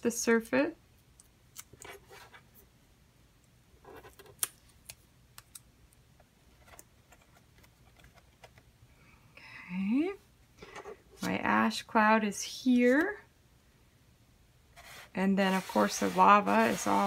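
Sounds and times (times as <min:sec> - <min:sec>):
paper rustling: 0:14.8 - 0:17.0.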